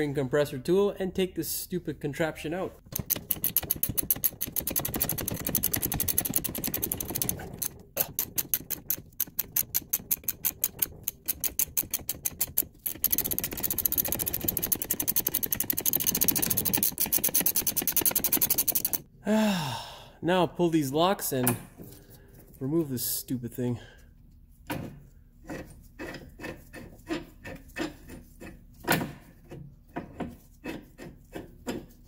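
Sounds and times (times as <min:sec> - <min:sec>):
ratcheting wrench clicking: 0:02.8 - 0:19.1.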